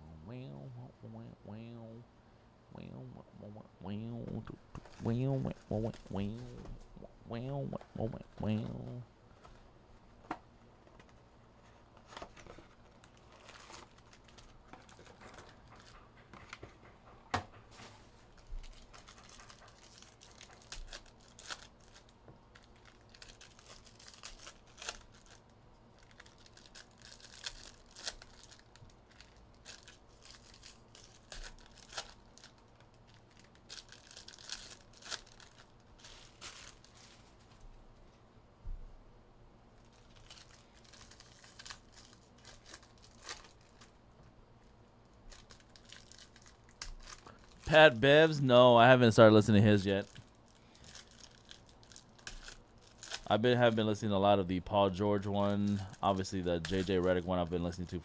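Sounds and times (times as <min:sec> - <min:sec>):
plastic wrappers ripping: 0:12.0 - 0:16.0, 0:18.3 - 0:37.4, 0:39.8 - 0:44.0, 0:45.2 - 0:54.0, 0:55.2 - 0:58.0.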